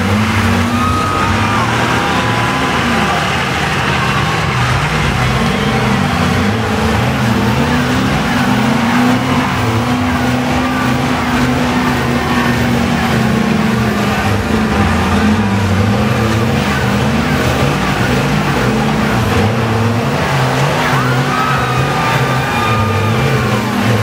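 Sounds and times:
diesel truck engines revving: 0.0s - 24.0s.

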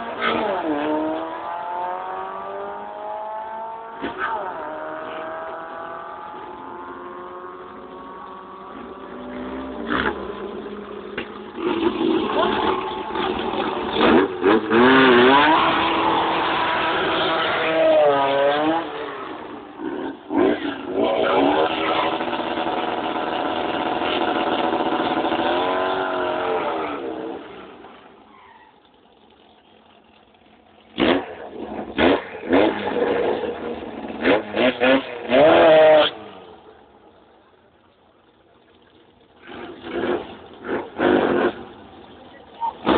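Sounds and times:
car engine revving hard: 0.0s - 10.5s, 11.6s - 27.4s, 31.0s - 36.4s, 39.4s - 41.8s, 42.6s - 42.9s
short sharp engine revs: 11.6s - 27.8s, 30.9s - 36.6s, 39.4s - 42.9s.

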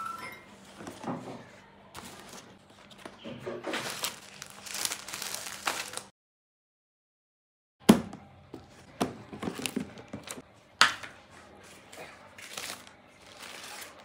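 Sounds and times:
paper and plastic rustling: 2.0s - 6.1s, 9.2s - 10.4s, 11.2s - 14.0s.

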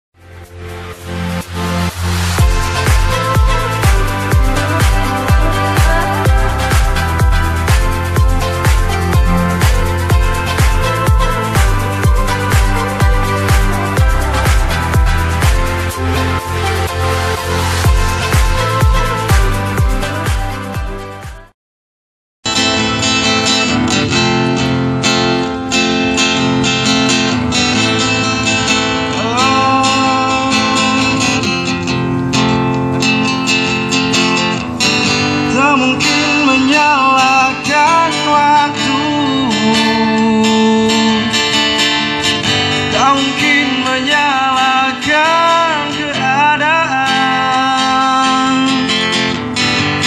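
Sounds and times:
acoustic guitar strumming: 0.2s - 21.5s, 22.5s - 50.0s
man singing into a microphone: 29.1s - 31.8s, 35.4s - 49.4s.

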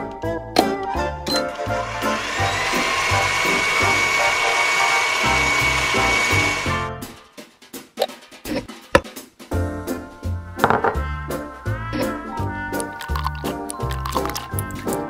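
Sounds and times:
light background music: 0.0s - 3.4s, 5.6s - 15.0s
small electric motor whirring: 1.6s - 6.6s.

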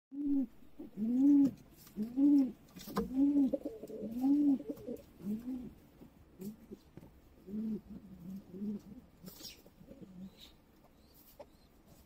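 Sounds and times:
pigeons cooing: 0.2s - 6.8s, 7.4s - 11.8s.

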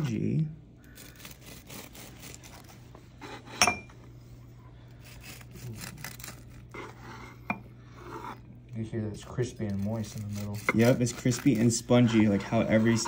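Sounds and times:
bread knife sawing through crust: 0.9s - 3.5s, 5.0s - 8.4s, 9.2s - 13.0s.

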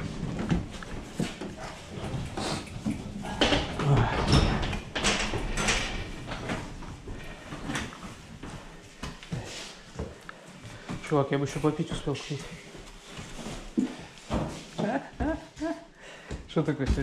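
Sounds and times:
bicycle rattling and clattering: 0.0s - 8.5s.

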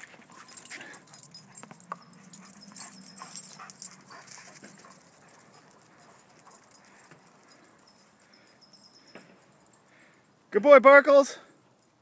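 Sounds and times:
paws and bouncing balls tapping: 0.0s - 8.1s.

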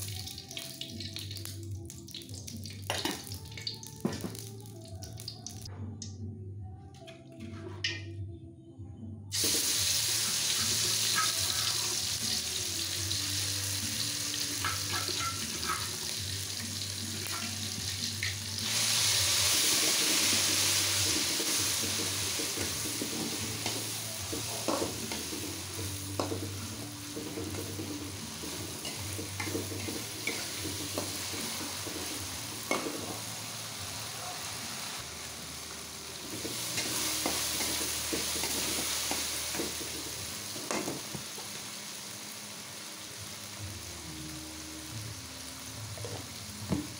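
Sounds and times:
chili paste sizzling in hot oil: 9.3s - 46.9s.

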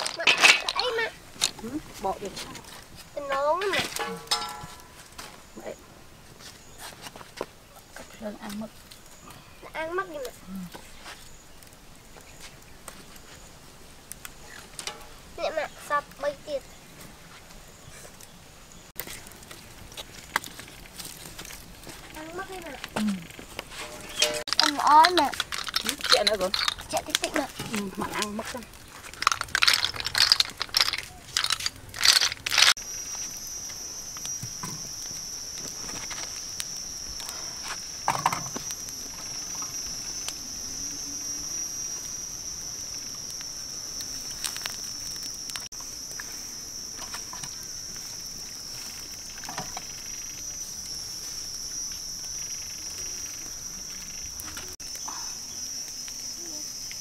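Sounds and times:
insects droning shrilly: 20.2s - 57.0s.

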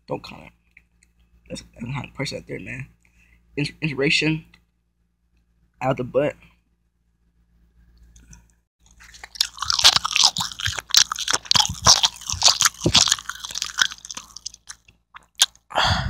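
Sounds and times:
person chewing crunchy food: 8.2s - 15.6s.

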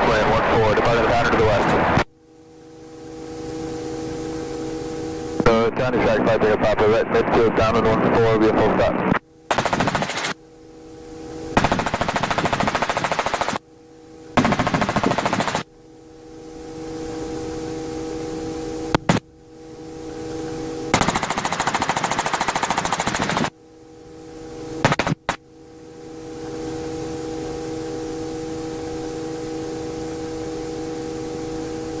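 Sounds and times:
helicopter cabin hum: 0.0s - 32.0s
rapid rattling pulses: 9.5s - 10.4s, 11.6s - 13.6s, 14.4s - 15.6s, 20.9s - 23.5s.

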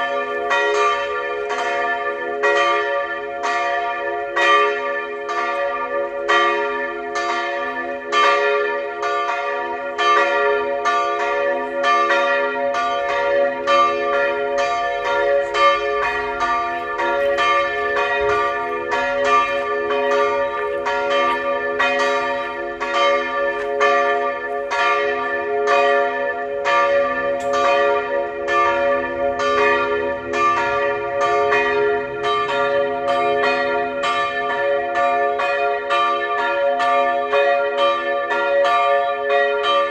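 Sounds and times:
church bells pealing: 0.0s - 39.9s.

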